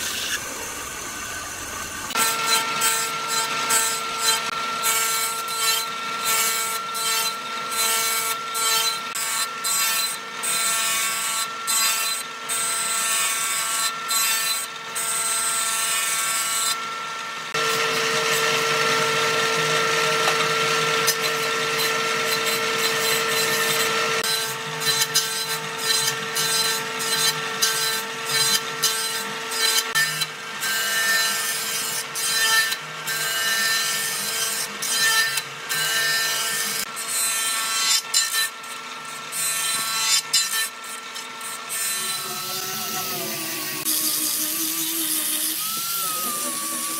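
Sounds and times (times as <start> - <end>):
machine motor whine: 0.0 - 9.6, 13.9 - 29.5, 41.6 - 46.9.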